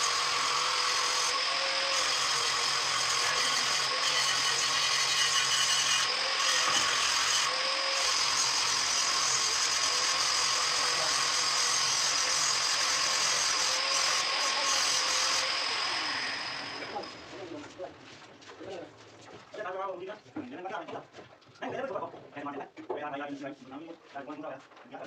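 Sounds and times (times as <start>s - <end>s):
machine running with whine: 15.3s - 17.5s.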